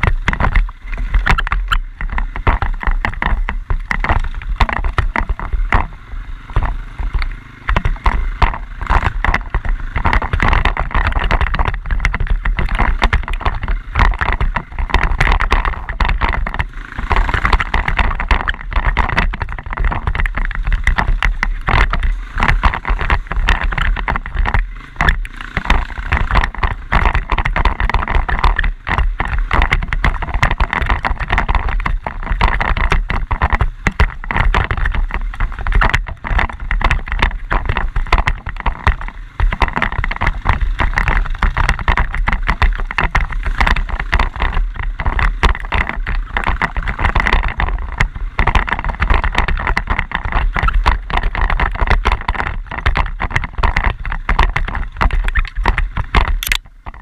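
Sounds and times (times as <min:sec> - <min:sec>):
quad bike engine: 0:00.0 - 0:57.0
wind rumble on microphone: 0:00.0 - 0:57.0.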